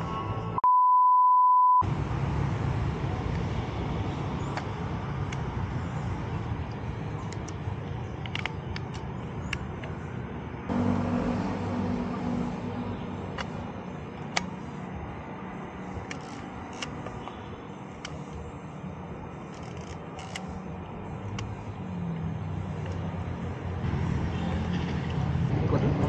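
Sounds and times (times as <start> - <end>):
road traffic: 0.0 - 0.6, 1.8 - 26.0
film camera clicks: 19.5 - 20.6.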